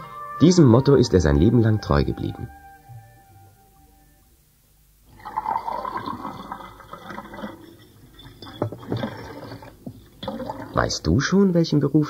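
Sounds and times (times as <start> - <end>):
liquid pouring into a glass: 5.1 - 11.1.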